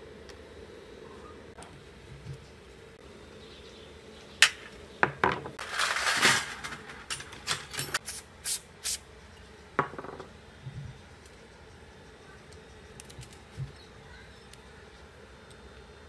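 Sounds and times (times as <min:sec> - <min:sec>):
metal scraping rattle: 0:05.6 - 0:08.0
metal tools clinking on tray: 0:05.6 - 0:08.0.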